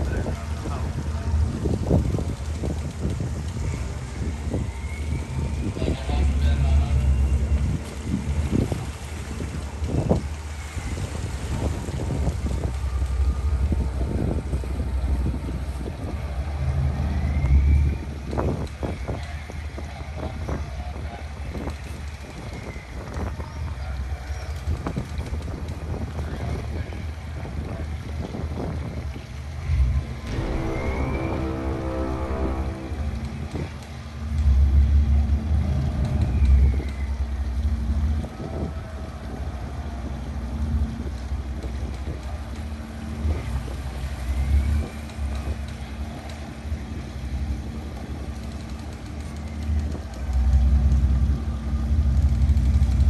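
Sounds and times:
wind on microphone: 0.0s - 23.6s
boat engines rumbling: 0.0s - 53.0s.

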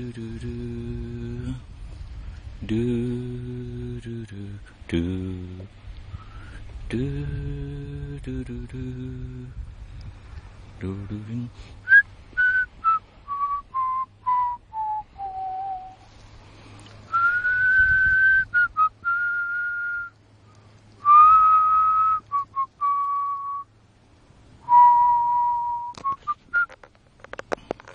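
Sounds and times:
person whistling a tune: 11.8s - 16.0s, 17.1s - 20.2s, 21.0s - 23.7s, 24.7s - 26.8s.

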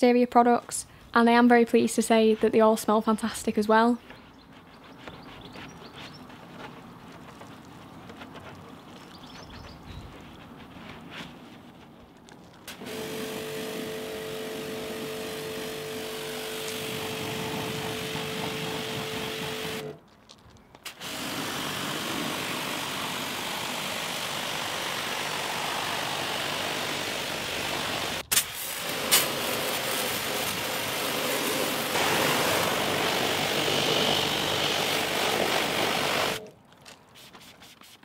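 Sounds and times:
pressure washer spraying water: 12.7s - 19.9s, 20.9s - 36.4s.

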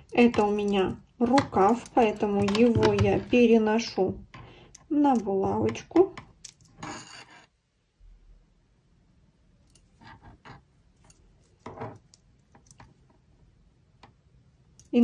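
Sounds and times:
knitting needles clicking: 0.0s - 3.8s, 4.6s - 6.8s, 11.0s - 13.0s, 14.8s - 15.0s.

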